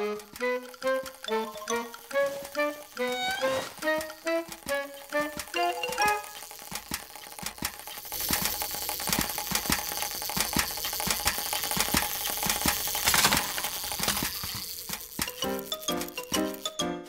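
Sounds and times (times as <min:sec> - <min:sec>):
cartoon dry clicks and taps: 0:00.0 - 0:17.0
steady high hiss: 0:12.2 - 0:17.0.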